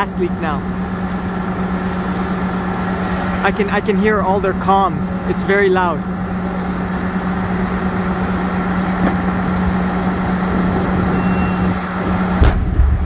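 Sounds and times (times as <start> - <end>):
diesel engine humming: 0.0 - 13.0
large fire rushing: 0.0 - 13.0
faint high beep: 11.2 - 11.7.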